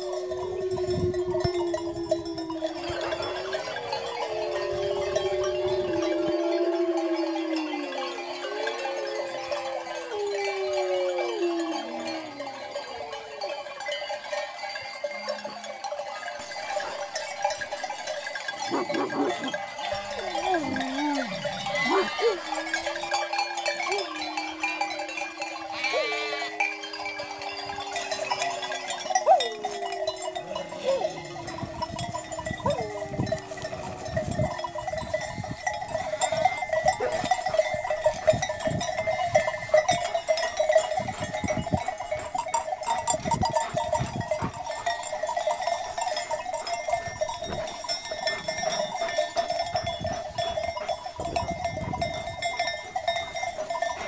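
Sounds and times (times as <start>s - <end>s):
flock bells clanking: 0.0s - 54.0s
sheep and goats bleating: 18.7s - 34.4s.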